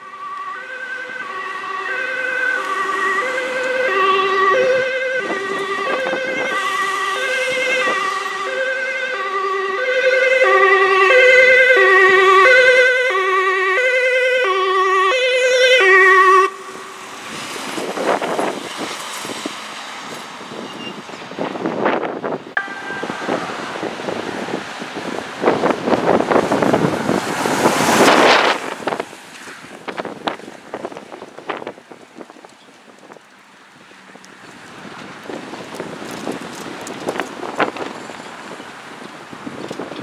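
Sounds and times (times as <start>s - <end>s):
two-tone ambulance siren: 0.0s - 18.9s, 22.6s - 29.2s
rushing road noise: 0.0s - 40.0s.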